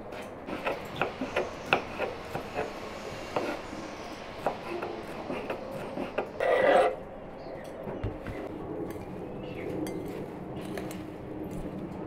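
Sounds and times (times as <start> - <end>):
dishes and utensils clinking: 9.8 - 11.0.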